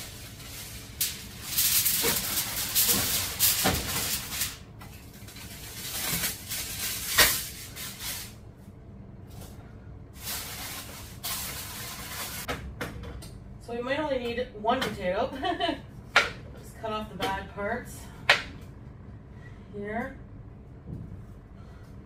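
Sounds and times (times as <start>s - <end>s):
aluminium foil crinkling: 0.0s - 8.4s, 10.2s - 12.5s.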